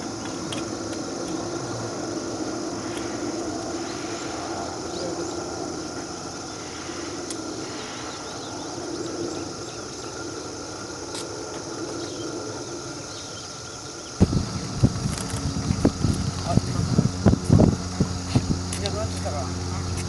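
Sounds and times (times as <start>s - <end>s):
steady low hum: 0.0s - 20.0s
sharp ticks: 7.2s - 7.5s, 14.2s - 20.0s.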